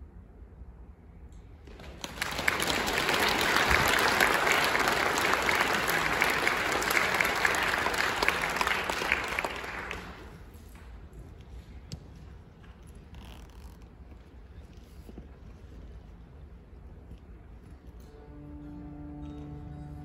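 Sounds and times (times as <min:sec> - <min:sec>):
audience applause: 0:01.7 - 0:10.5.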